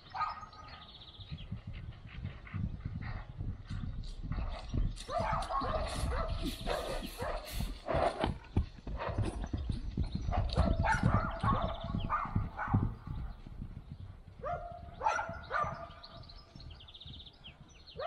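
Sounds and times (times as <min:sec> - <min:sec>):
dog barking: 0:00.2 - 0:00.5, 0:05.1 - 0:07.5, 0:10.6 - 0:12.9, 0:14.4 - 0:16.0
horse hooves thudding on turf: 0:01.2 - 0:18.0.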